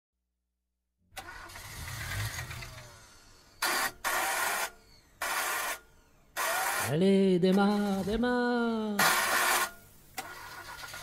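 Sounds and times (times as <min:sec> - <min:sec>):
car starter cranking: 0:01.1 - 0:06.9, 0:09.0 - 0:11.0.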